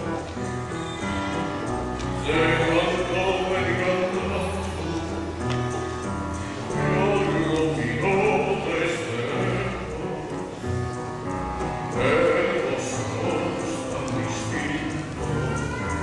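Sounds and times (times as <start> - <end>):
instrumental accompaniment: 0.0 - 16.0
man singing a ballad: 2.2 - 5.5, 6.6 - 10.6, 11.9 - 16.0.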